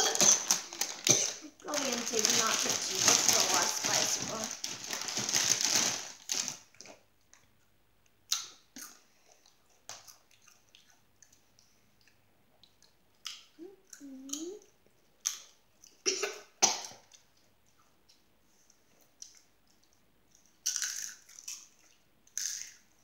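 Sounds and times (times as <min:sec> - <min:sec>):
child crunching chips: 0:00.0 - 0:07.0, 0:19.2 - 0:23.0
chip bag crinkling: 0:00.0 - 0:07.0.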